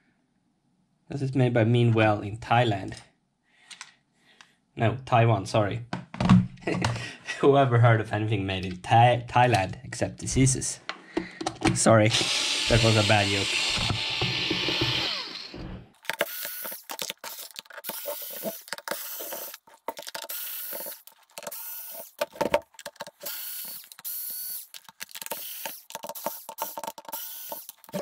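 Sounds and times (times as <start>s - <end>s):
electric screwdriver whine: 12.1s - 19.6s, 20.3s - 22.2s, 23.2s - 28.0s.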